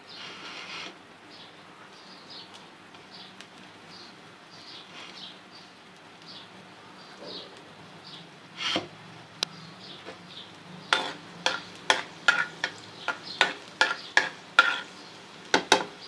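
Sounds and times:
garlic sizzling in pan: 2.4s - 16.0s
spoon scraping pan: 10.0s - 16.0s.

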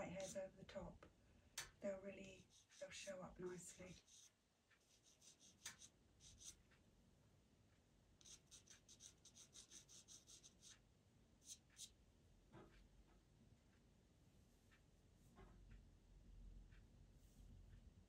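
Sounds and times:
pencil scratching on paper: 0.0s - 0.4s, 2.2s - 6.8s, 8.2s - 10.8s, 11.4s - 12.0s.

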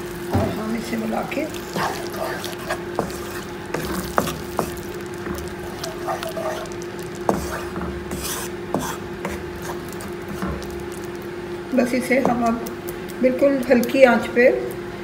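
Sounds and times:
spatula stirring curry in wok: 0.0s - 11.1s
sauce sizzling: 0.0s - 11.6s.

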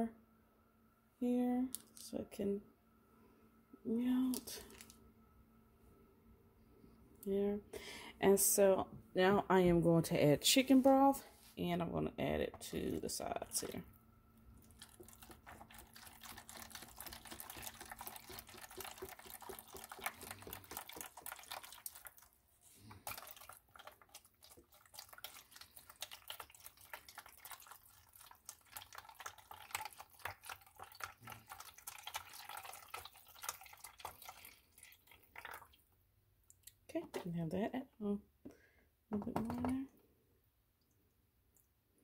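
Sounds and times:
liquid trickling and splashing: 14.6s - 35.8s.

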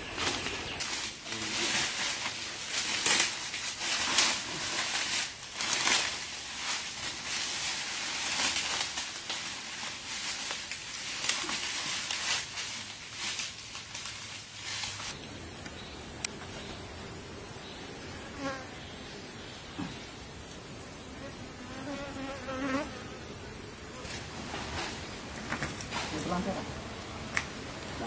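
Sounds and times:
footsteps crunching on dry leaves: 0.0s - 15.2s.

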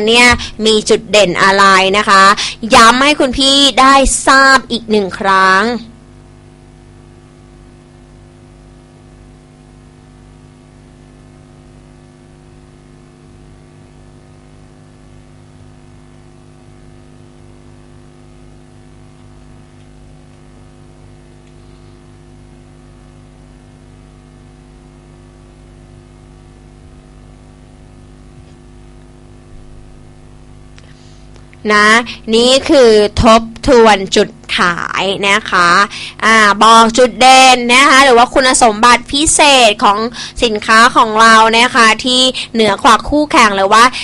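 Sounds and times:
electrical mains hum: 0.0s - 44.0s
faint hiss: 21.3s - 23.7s.

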